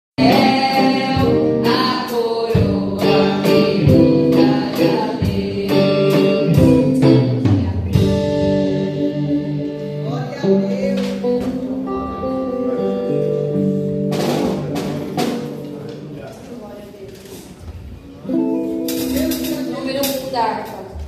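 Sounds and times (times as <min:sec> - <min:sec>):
hymn singing: 0:00.2 - 0:13.5
guitar accompaniment: 0:00.2 - 0:21.0.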